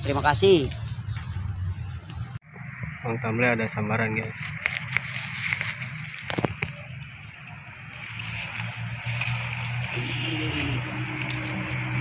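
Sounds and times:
motor engine running: 0:05.5 - 0:12.0.

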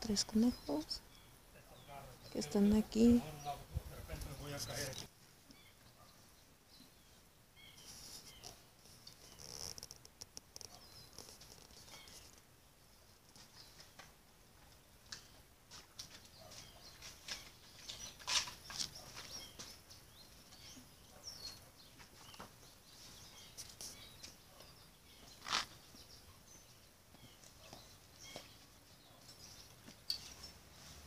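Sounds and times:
small animals rustling: 0:07.6 - 0:31.0.

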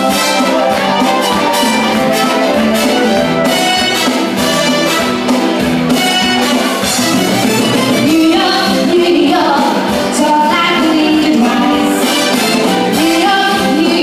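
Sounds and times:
loud backing music: 0:00.0 - 0:14.0
woman singing into microphone: 0:08.0 - 0:12.2, 0:12.9 - 0:14.0.

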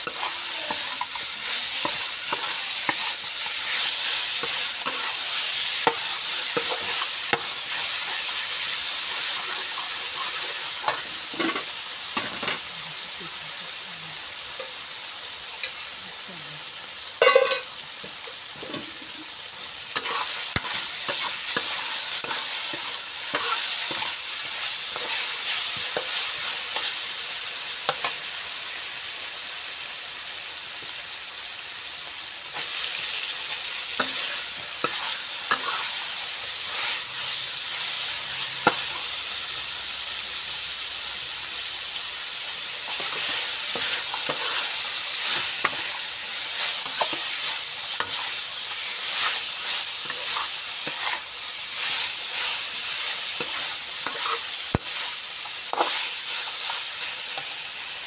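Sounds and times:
chicken sizzling in wok: 0:00.0 - 0:58.0
spatula scraping metal pan: 0:46.6 - 0:57.5.

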